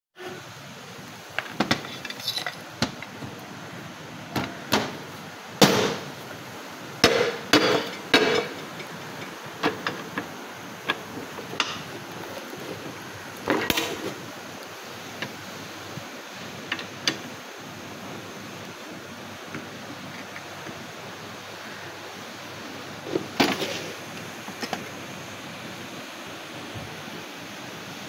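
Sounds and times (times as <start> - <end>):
metal parts knocking and clinking: 1.4 - 3.1.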